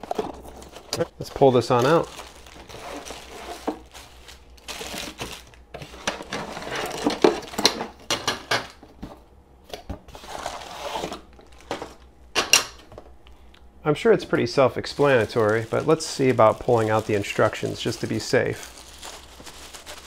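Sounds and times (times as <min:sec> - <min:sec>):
packaging crinkling: 0:00.0 - 0:08.0, 0:10.2 - 0:12.1, 0:14.4 - 0:20.0.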